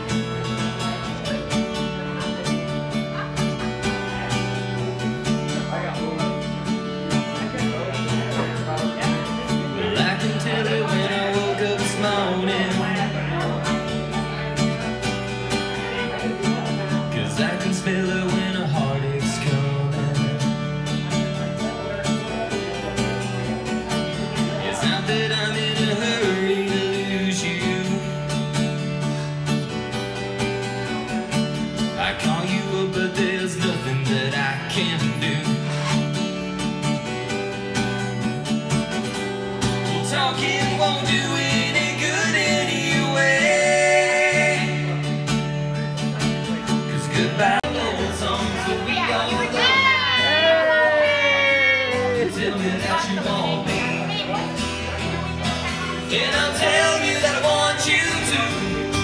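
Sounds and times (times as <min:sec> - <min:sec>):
bass line: 0:00.0 - 0:59.0
guitar: 0:00.0 - 0:59.0
person singing: 0:09.3 - 0:14.4, 0:15.8 - 0:20.9, 0:39.8 - 0:45.2, 0:46.4 - 0:59.0.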